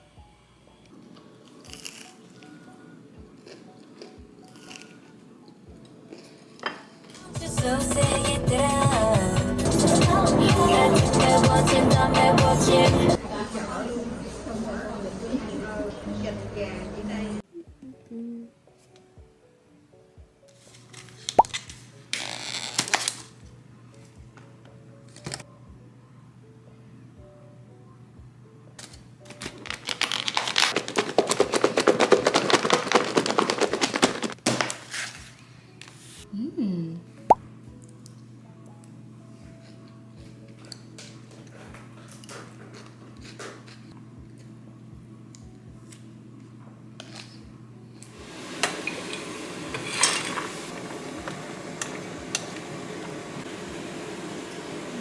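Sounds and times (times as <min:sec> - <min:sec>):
salad bowl rattling clatter: 0:30.8 - 0:34.3.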